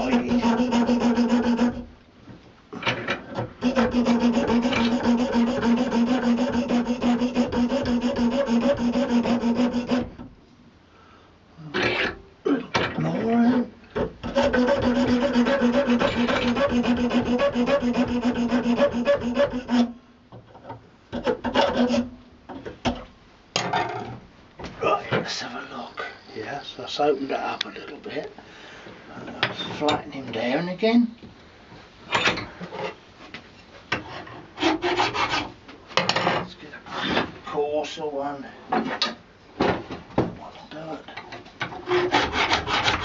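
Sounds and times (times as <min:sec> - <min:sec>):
hand file rasping on horn: 0:00.0 - 0:01.8, 0:03.6 - 0:10.2, 0:13.5 - 0:20.0, 0:21.2 - 0:22.1, 0:34.6 - 0:35.5, 0:41.8 - 0:43.0.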